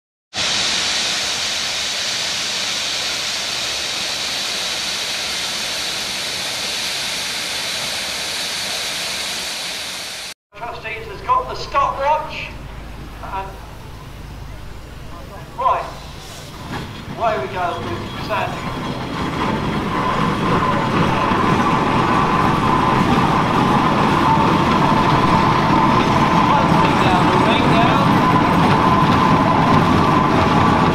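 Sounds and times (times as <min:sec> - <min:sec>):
steam hissing from locomotive: 0:00.3 - 0:10.4, 0:15.8 - 0:19.1
steam engine rumbling: 0:00.4 - 0:30.9.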